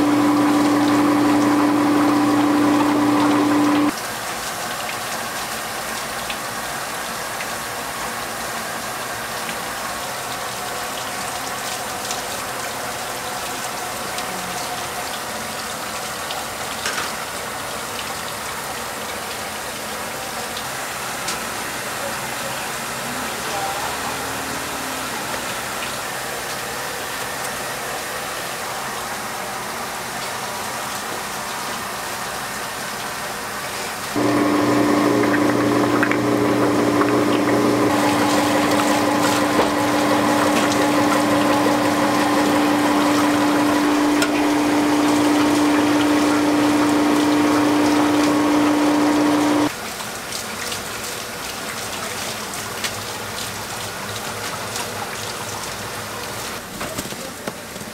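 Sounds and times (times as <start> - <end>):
electric motor humming: 0.0 - 4.0, 34.2 - 49.7.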